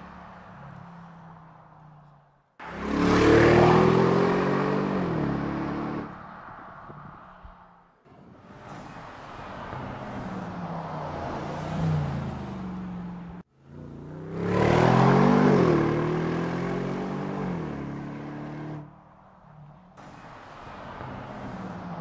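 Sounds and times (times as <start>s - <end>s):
car engine accelerating: 2.6s - 6.2s.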